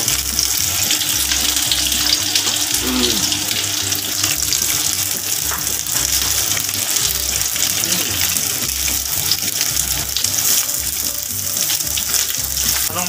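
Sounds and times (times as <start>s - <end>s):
food sizzling in oil: 0.0s - 13.0s
chopsticks ticking: 4.2s - 13.0s.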